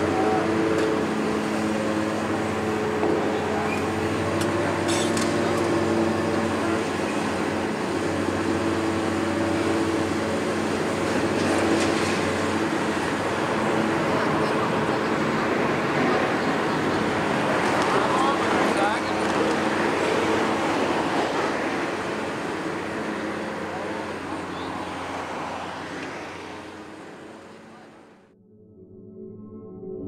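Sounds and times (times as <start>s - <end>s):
excavator diesel engine running: 0.0s - 28.3s.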